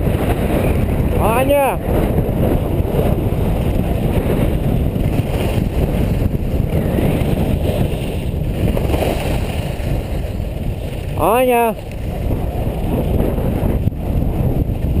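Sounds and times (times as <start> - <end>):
wind buffeting microphone: 0.0 - 15.0
skis sliding over snow: 2.8 - 13.7.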